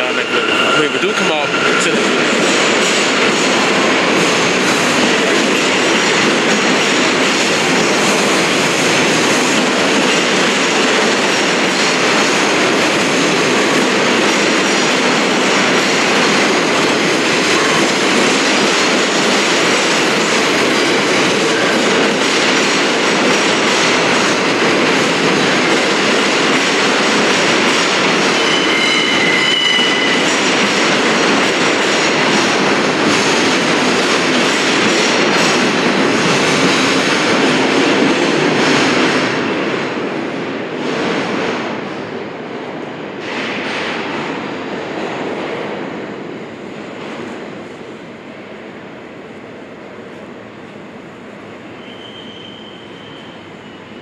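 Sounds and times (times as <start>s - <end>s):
subway train wheels on rail: 0.0s - 54.0s
high-pitched wheel squeal: 28.4s - 30.2s, 51.8s - 54.0s.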